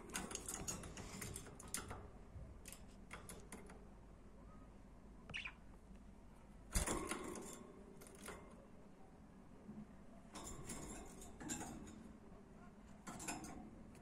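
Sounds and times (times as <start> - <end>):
budgies tapping on cage wire: 0.0 - 2.0, 2.6 - 3.9, 6.7 - 8.6, 13.0 - 14.0.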